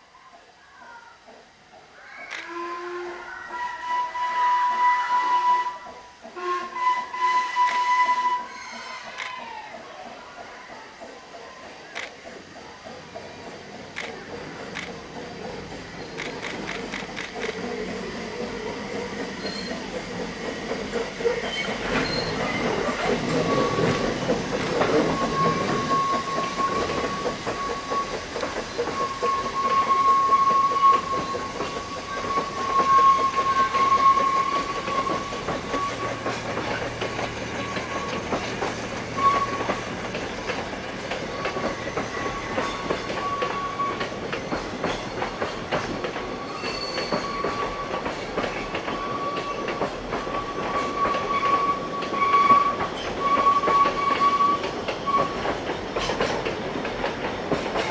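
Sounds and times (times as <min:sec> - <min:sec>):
wheel flanges squealing: 0:06.9 - 0:09.7, 0:18.7 - 0:20.0, 0:21.2 - 0:56.2
wheels clicking over rail joints: 0:07.1 - 0:57.9.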